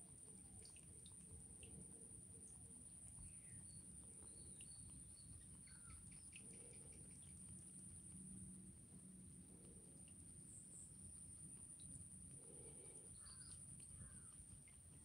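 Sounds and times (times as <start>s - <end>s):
faint bird chirps: 2.9s - 7.6s, 11.8s - 14.9s.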